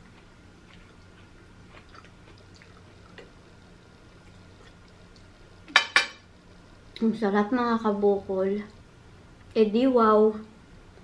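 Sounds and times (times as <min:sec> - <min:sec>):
chewing and mouth clicks: 0:00.0 - 0:03.4.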